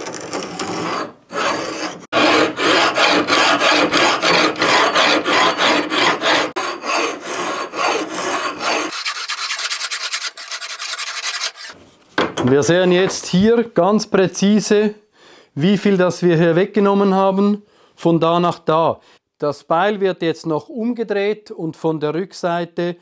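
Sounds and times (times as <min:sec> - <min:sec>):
file rasping on steel blade: 0:00.4 - 0:11.8.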